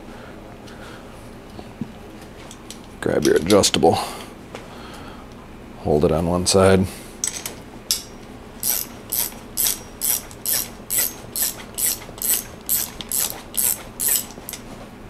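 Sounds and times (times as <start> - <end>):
hand ratchet clicking: 7.9 - 14.6.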